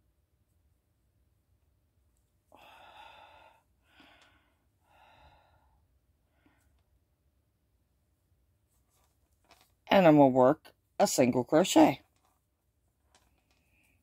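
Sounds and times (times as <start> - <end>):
person breathing: 2.5 - 6.9.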